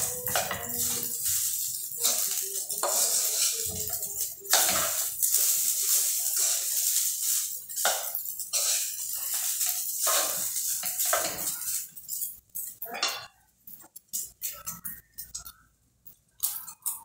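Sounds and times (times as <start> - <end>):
wooden spatula scraping metal pan: 0.0 - 12.3
food sizzling: 0.0 - 17.0.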